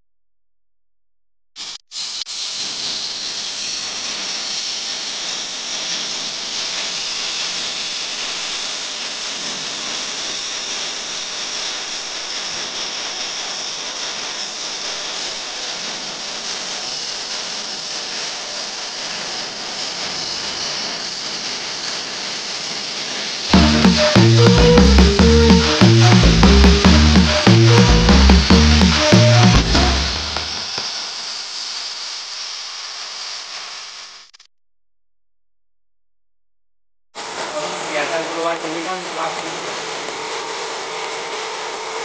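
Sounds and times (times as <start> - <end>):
pressurized spray hissing: 1.6 - 24.2, 28.5 - 34.3, 37.2 - 41.5.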